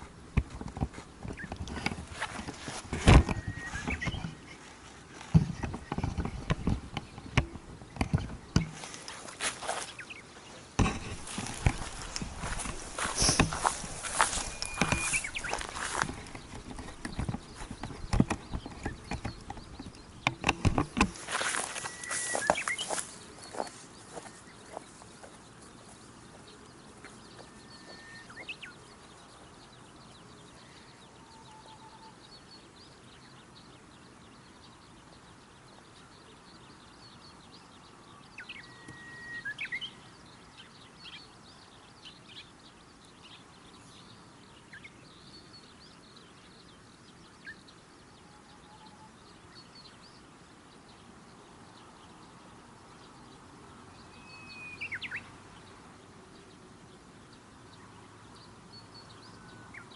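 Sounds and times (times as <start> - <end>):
footsteps in grass: 0.0 - 29.6
short whistled calls: 3.3 - 4.3, 14.2 - 15.8, 21.5 - 23.0, 27.6 - 28.6, 38.6 - 40.0.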